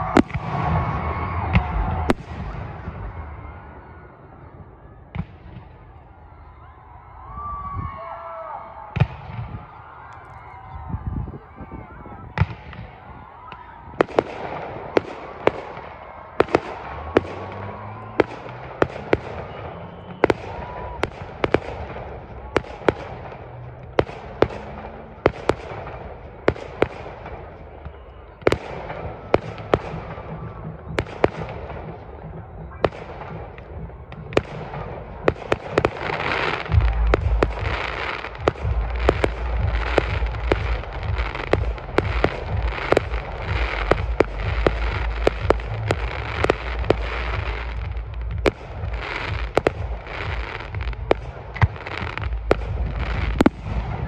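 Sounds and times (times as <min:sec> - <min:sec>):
fireworks bangs: 0:00.0 - 0:54.0
fireworks crackling: 0:00.0 - 0:54.0
heavy low rumble: 0:29.0 - 0:54.0.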